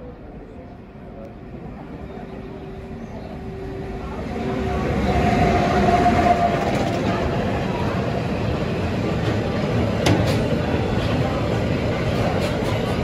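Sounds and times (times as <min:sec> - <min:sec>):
train wheels rumbling on rail: 0:01.4 - 0:13.0.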